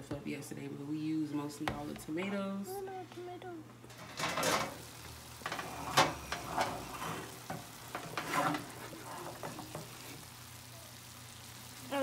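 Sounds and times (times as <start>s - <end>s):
meat and onions sizzling in pan: 3.9s - 12.0s
wooden spatula scraping pan: 5.4s - 10.2s.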